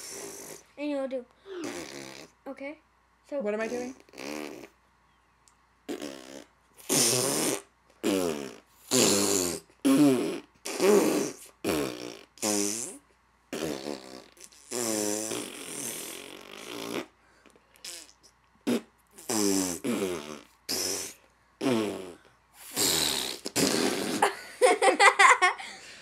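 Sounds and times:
people blowing raspberries: 0:00.0 - 0:00.7, 0:01.5 - 0:02.3, 0:04.0 - 0:04.8, 0:05.9 - 0:24.4.

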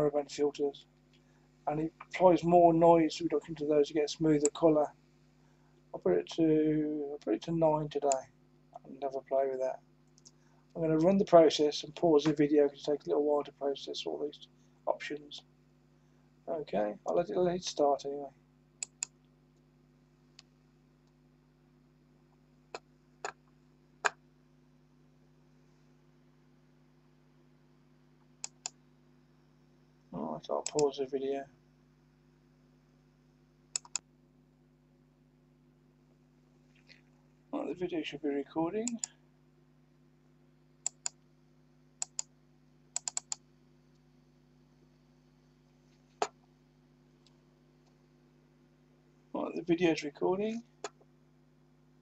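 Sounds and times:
low steady hum: 0:00.0 - 0:52.0
computer mouse clicking: 0:28.4 - 0:28.8, 0:30.6 - 0:30.9, 0:33.7 - 0:34.0, 0:40.8 - 0:41.2, 0:42.0 - 0:42.3, 0:43.0 - 0:43.4.

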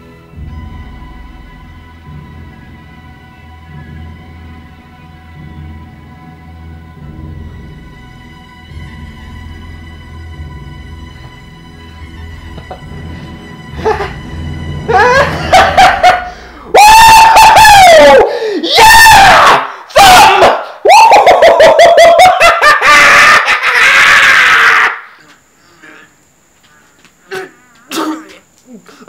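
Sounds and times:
man laughing hysterically: 0:14.9 - 0:18.2, 0:20.9 - 0:25.0.

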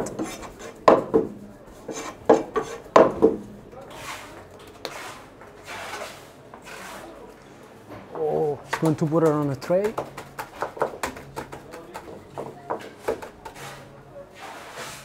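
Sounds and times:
hand rubbing meat on wood: 0:01.7 - 0:02.9
knife knocking on wooden block: 0:02.3 - 0:03.4, 0:08.8 - 0:13.3.

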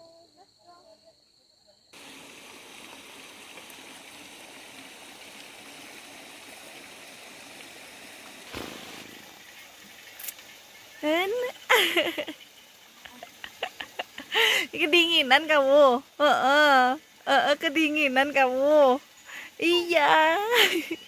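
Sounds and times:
stream rushing: 0:02.0 - 0:12.2.

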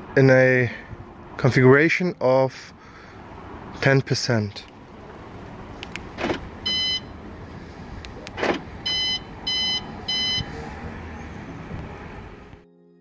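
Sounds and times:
lock clunk: 0:05.8 - 0:06.5, 0:08.1 - 0:08.7
car alarm beeps: 0:06.6 - 0:07.2, 0:08.4 - 0:10.6.

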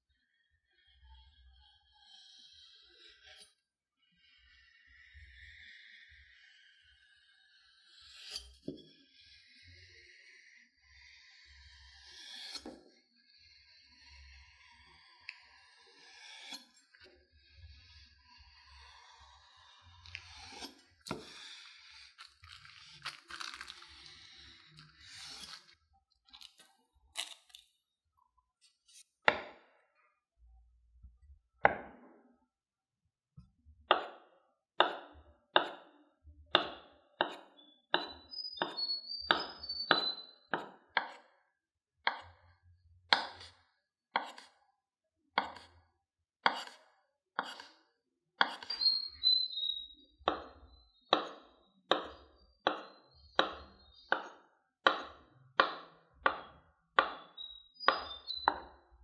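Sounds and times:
knife cutting dough: 0:12.0 - 0:16.8, 0:17.4 - 0:27.7, 0:36.5 - 0:41.3, 0:42.1 - 0:42.4, 0:43.1 - 0:43.6, 0:44.2 - 0:44.6, 0:45.4 - 0:45.8, 0:46.4 - 0:47.8, 0:48.4 - 0:49.4, 0:50.3 - 0:58.7.

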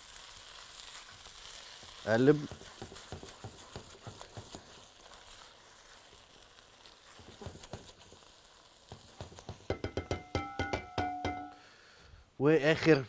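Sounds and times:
stew sizzling in a pot: 0:00.0 - 0:12.1
spatula scraping a pot: 0:01.2 - 0:10.0.

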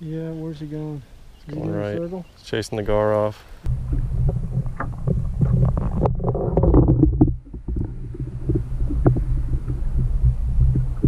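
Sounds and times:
swishing water noise: 0:03.6 - 0:11.0
underwater low hum: 0:03.6 - 0:11.0.

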